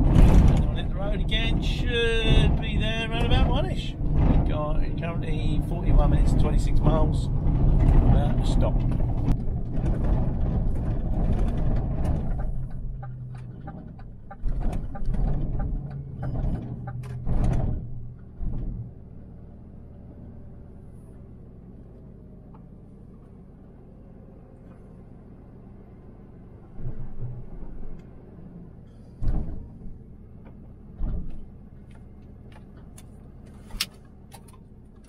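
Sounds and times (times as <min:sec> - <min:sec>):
lorry engine: 0:00.0 - 0:35.0
road noise: 0:00.0 - 0:35.0.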